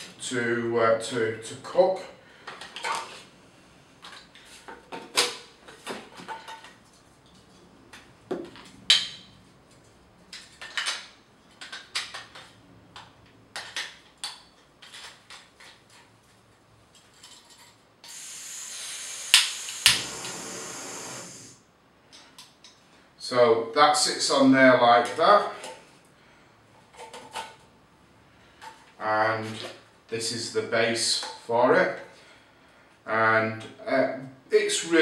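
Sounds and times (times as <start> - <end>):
gas hissing from burner: 18.0 - 21.7.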